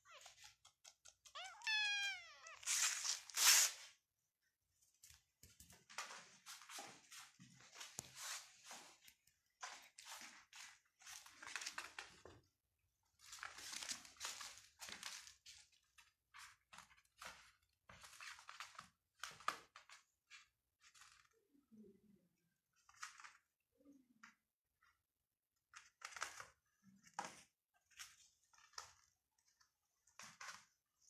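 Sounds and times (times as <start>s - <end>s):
soft rustling and scratching: 5.0s - 12.3s.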